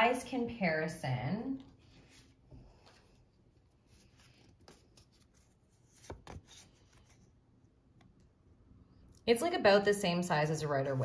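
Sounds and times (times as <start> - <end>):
hands handling cards: 1.8 - 7.4.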